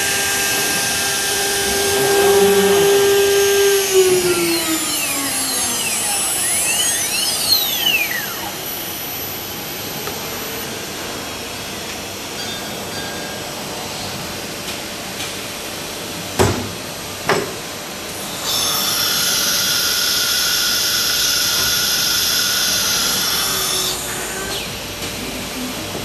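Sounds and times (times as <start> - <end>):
hissing whine of tool changer: 0.0 - 13.8
pneumatic clunks: 16.4 - 17.7.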